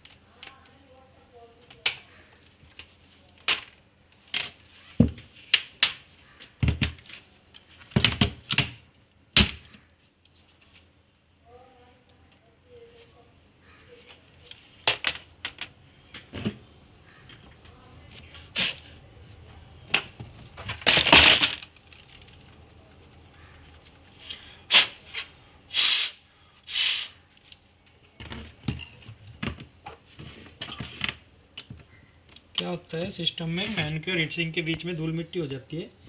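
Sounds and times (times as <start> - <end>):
plastic parts clattering: 14.0 - 16.6, 19.9 - 22.8
breath blowing: 25.7 - 27.2.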